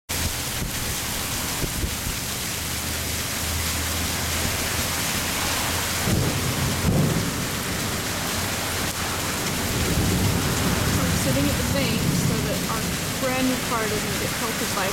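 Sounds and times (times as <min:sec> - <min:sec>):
heavy rain pouring: 0:00.1 - 0:14.9
low thunder rumbling: 0:04.2 - 0:14.9.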